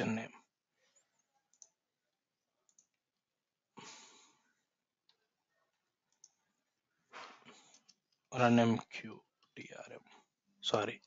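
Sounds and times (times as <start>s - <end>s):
faint clicks: 0.9s - 1.8s, 2.6s - 3.0s, 6.1s - 6.4s
faint breath: 3.8s - 4.6s.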